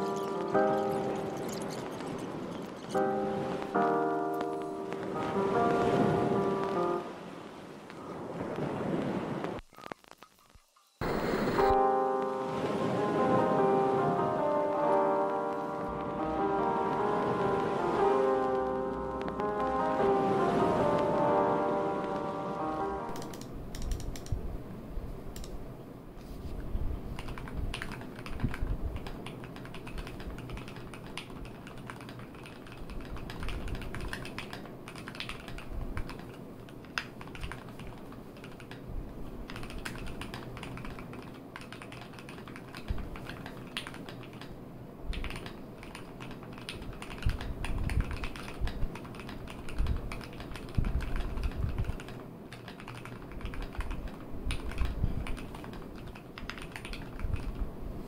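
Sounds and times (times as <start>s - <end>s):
mechanical keyboard typing: 23.1s - 24.4s, 27.2s - 38.8s, 39.5s - 44.5s, 45.1s - 57.6s.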